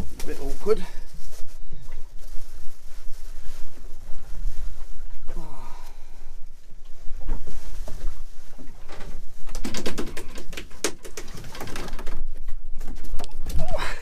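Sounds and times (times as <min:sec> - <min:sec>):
rustling and knocking of fish handling: 0:00.0 - 0:14.0.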